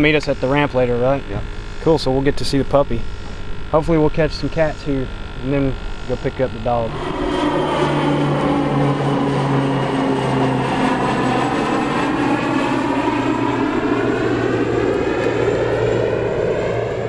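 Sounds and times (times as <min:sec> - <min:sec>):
propeller airplane droning overhead: 0:00.0 - 0:17.0.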